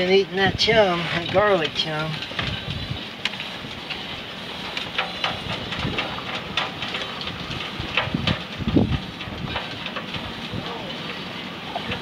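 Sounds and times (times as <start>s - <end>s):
wind rumble on microphone: 0.0s - 12.0s
hands clicking and tapping gear: 1.2s - 11.0s.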